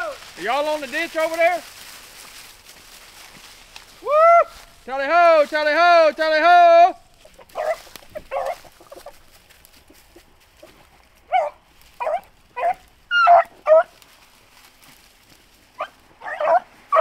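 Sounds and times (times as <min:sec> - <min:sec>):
dogs baying: 0:07.1 - 0:14.0, 0:15.8 - 0:17.0.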